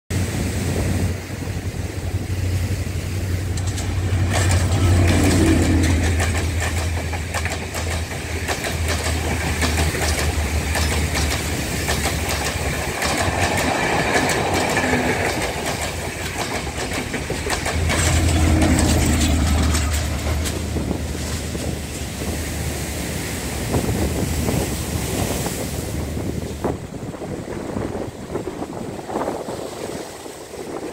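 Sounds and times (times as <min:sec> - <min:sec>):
diesel engine drone: 0:00.2 - 0:11.8, 0:16.6 - 0:23.1
wheels clattering over rail joints: 0:01.3 - 0:23.1.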